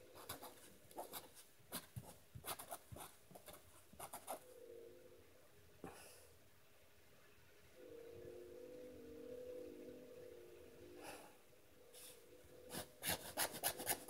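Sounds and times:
faint steady hum: 0.0 - 14.0
pen scratching on paper: 0.2 - 4.4, 12.7 - 14.0.

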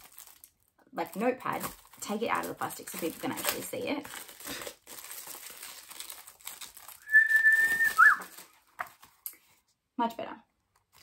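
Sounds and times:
plastic sleeve rustling: 0.0 - 9.8, 10.7 - 11.0
loud whistle: 7.0 - 8.2.

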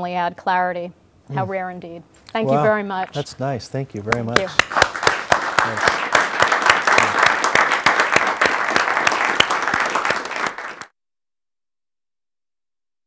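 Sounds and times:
audience applauding: 4.1 - 10.9.

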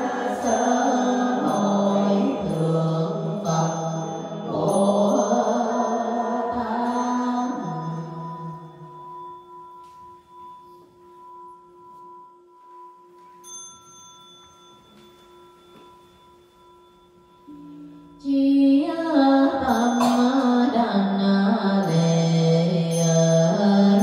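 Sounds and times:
group chanting: 0.0 - 3.7
bowl bell ringing: 0.0 - 24.0.

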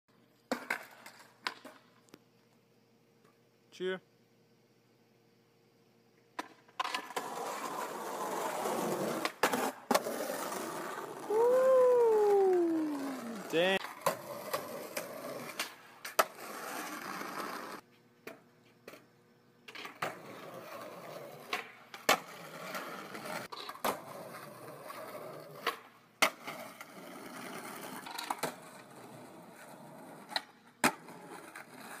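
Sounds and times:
skateboard wheels rolling on concrete: 0.1 - 3.5, 6.1 - 32.0
skateboard clacks popping and landing: 0.4 - 2.0, 6.3 - 11.0, 13.8 - 19.0, 19.7 - 32.0.

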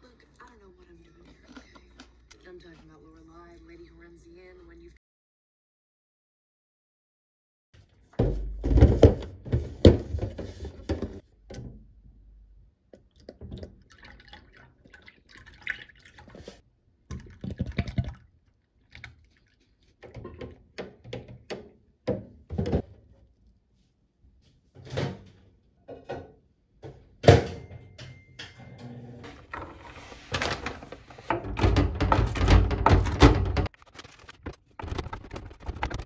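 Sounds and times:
milk pouring into container: 12.9 - 20.0.

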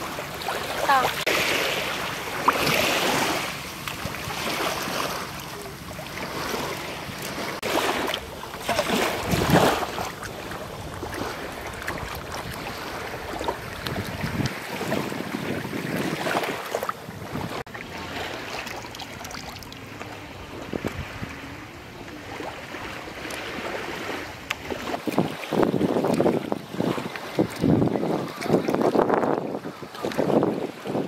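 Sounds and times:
small waves washing on shore: 0.0 - 31.0
wind buffeting microphone: 5.8 - 17.7, 20.2 - 31.0.

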